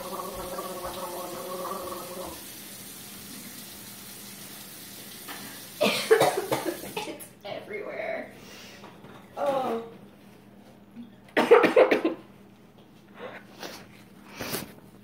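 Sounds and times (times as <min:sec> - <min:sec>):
tap water running into sink: 0:00.0 - 0:07.0.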